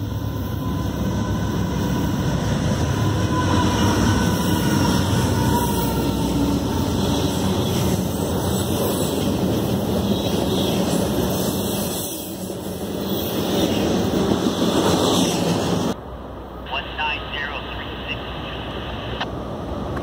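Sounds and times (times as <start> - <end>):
train wheels rolling on rail: 0.0 - 16.0.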